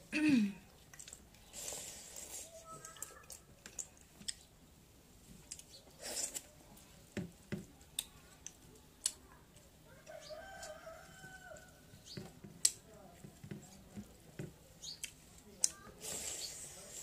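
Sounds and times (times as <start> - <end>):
eating by hand clicks and smacks: 0.7 - 4.5, 5.4 - 6.5, 7.2 - 10.9, 11.5 - 16.6
rooster crowing: 9.9 - 11.8.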